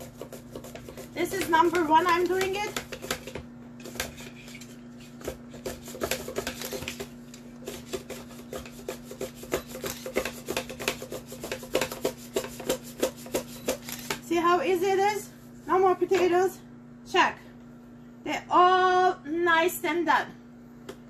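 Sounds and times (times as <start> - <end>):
mandoline slicer scraping potato: 0.0 - 14.4.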